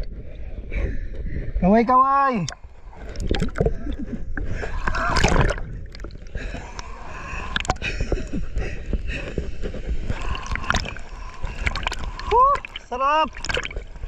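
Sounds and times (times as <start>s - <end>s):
river water splashing: 4.7s - 6.2s, 10.0s - 14.0s.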